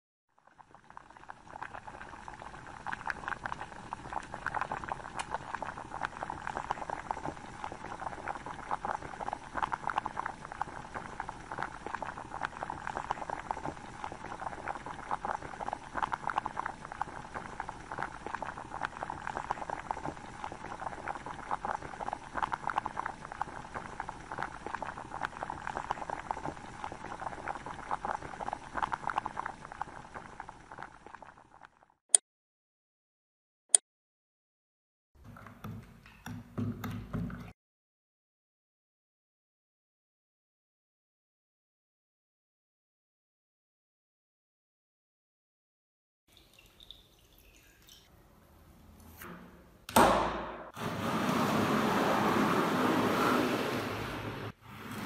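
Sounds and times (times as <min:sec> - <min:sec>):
crackle of popping bubbles: 0:00.3 - 0:32.0, 0:46.3 - 0:48.1.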